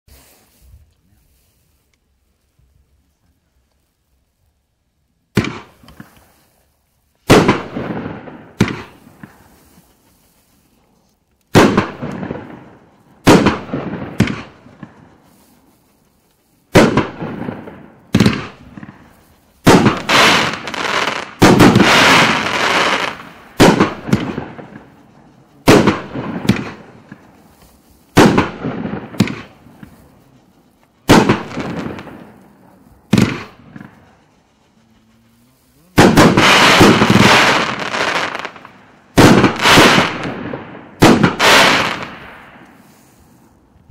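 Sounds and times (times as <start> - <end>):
firework crackling: 0.1 - 43.9
firework bangs: 5.3 - 6.6, 7.2 - 10.4, 11.5 - 15.8, 16.6 - 34.3, 35.8 - 43.7.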